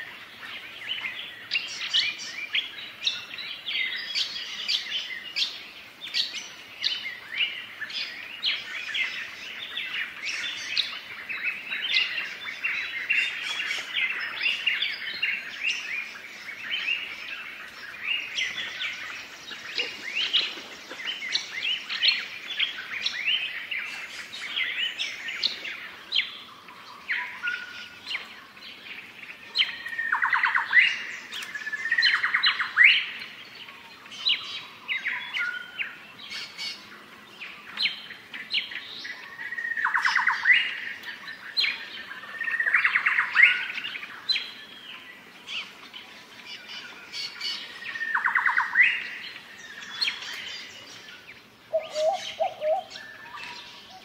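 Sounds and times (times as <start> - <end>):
birds chirping in chorus: 0.0 - 54.0
rapid bird trills: 47.0 - 54.0.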